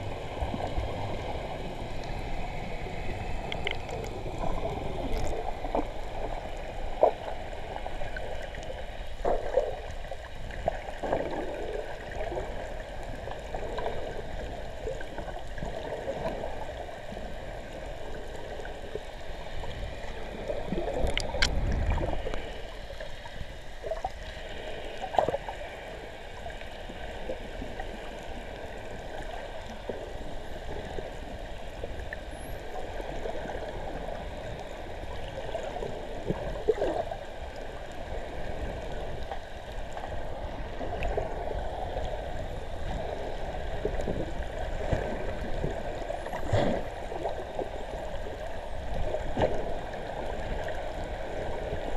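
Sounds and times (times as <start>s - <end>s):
underwater gurgling wash: 0.0s - 51.9s
bubbles popping and clicking: 21.0s - 21.6s.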